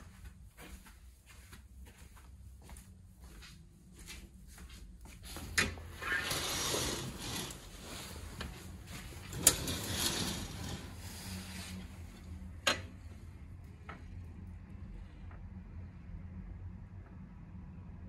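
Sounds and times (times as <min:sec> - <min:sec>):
curtain runners sliding on rail: 0:05.6 - 0:12.9
curtain rail clacks: 0:06.1 - 0:11.4.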